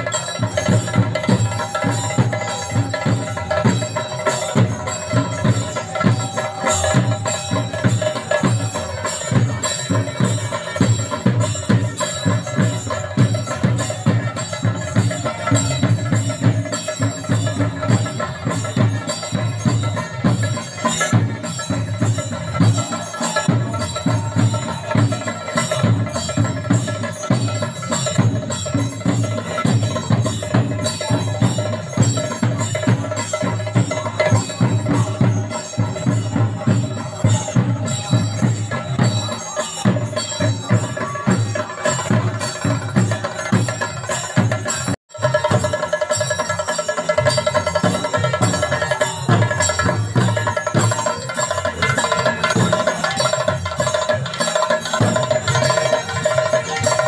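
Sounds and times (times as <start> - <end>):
drums in fast rhythm: 0.0 - 57.0
ringing metal percussion: 0.0 - 57.0.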